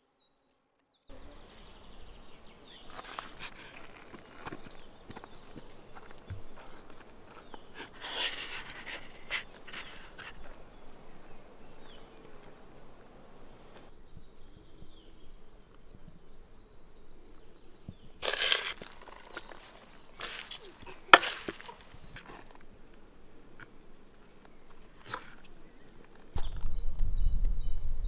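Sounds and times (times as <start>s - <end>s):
wooden spoon scraping vegetables: 2.9s - 4.3s, 7.7s - 10.4s, 18.2s - 22.6s.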